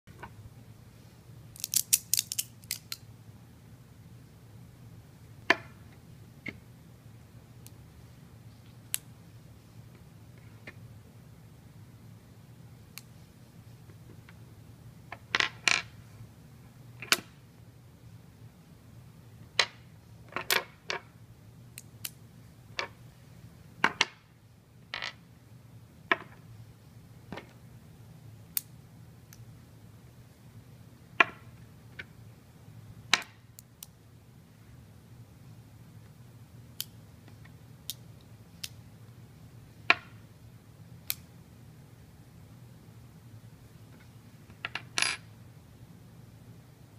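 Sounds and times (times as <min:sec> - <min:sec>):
faint steady hum: 0:00.1 - 0:46.9
metal cylinders clicking together: 0:01.6 - 0:03.0.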